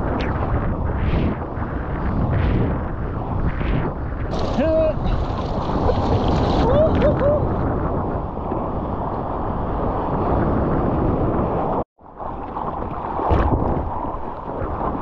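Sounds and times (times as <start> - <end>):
wind buffeting microphone: 0.0 - 15.0
water churning and sloshing: 4.2 - 7.7, 12.0 - 15.0
water splash: 4.3 - 7.4, 12.2 - 15.0.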